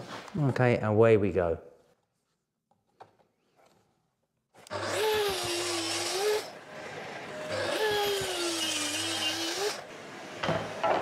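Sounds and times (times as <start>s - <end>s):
track saw cutting wood: 4.6s - 10.8s.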